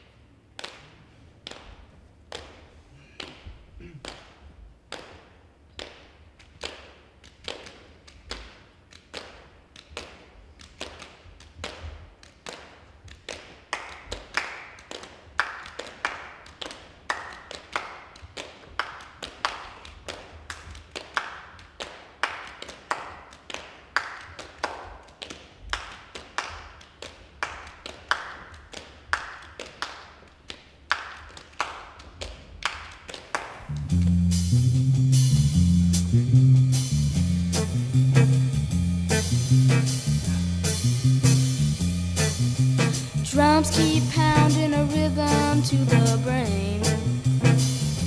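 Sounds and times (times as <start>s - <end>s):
hand claps and taps: 0.6s - 33.8s.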